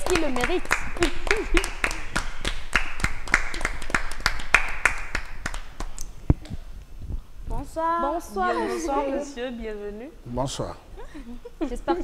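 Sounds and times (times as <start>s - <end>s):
people clapping: 0.0s - 6.1s.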